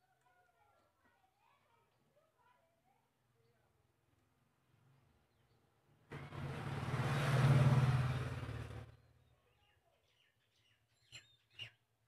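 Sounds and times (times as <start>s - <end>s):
motor vehicle passing by: 6.1s - 9.2s.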